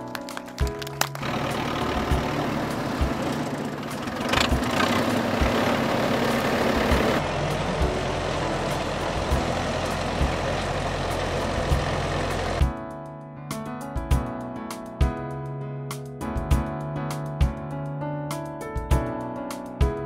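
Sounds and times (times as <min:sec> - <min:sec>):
diesel locomotive engine drone: 0:01.0 - 0:12.6.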